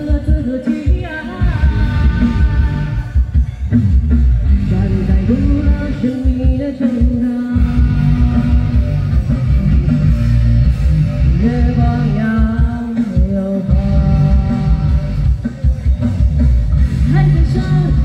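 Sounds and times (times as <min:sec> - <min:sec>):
woman singing into a microphone: 0:00.0 - 0:03.3, 0:04.5 - 0:08.8, 0:11.2 - 0:15.2, 0:17.0 - 0:18.0
backing music with heavy beat: 0:00.0 - 0:18.0.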